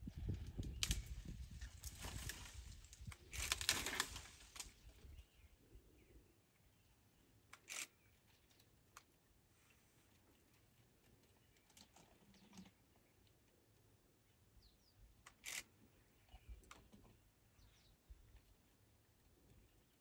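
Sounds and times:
leaves and twigs rustling: 0.0 - 5.2
bird chirping: 17.4 - 18.5.

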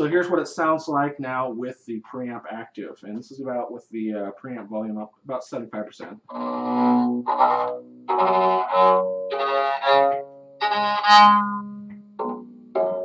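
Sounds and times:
electric cello bowed notes: 6.2 - 13.0.

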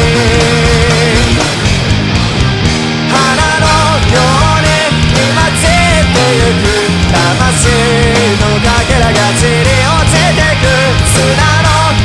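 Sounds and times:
person singing: 0.0 - 1.6, 3.1 - 12.0
punk rock band playing: 0.0 - 12.0.

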